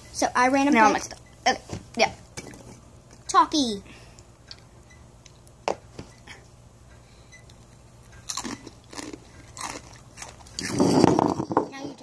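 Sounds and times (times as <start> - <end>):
crunching corn chips: 8.2 - 11.4.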